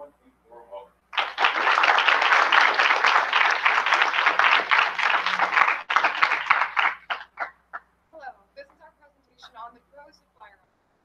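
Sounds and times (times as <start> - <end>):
people applauding: 1.2 - 7.8.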